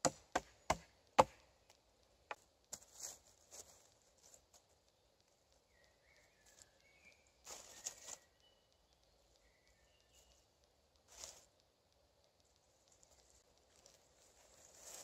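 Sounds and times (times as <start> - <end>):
faint bird chirps: 4.8 - 11.5.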